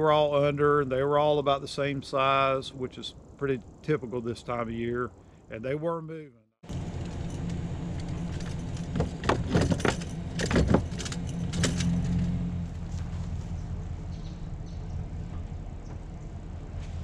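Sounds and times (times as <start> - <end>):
pickup truck engine idling: 6.7 - 17.0
fishing gear clattering: 7.0 - 12.3.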